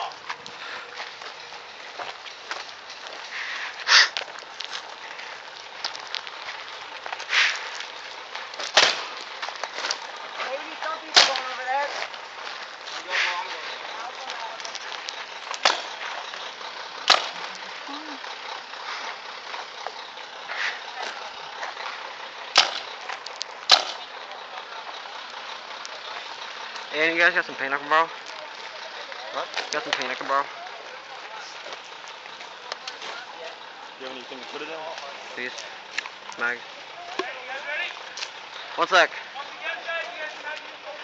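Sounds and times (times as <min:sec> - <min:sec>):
footsteps on gravel: 0:00.0 - 0:18.2, 0:18.8 - 0:24.2, 0:28.0 - 0:38.7
steady outdoor hiss: 0:00.0 - 0:41.0.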